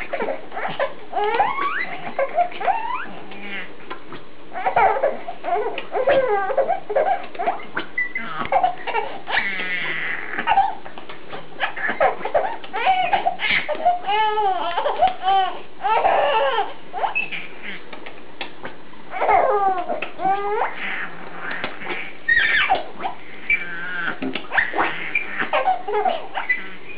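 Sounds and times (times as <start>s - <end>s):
baby laughing: 0.0s - 3.7s, 4.6s - 17.8s, 19.1s - 26.8s.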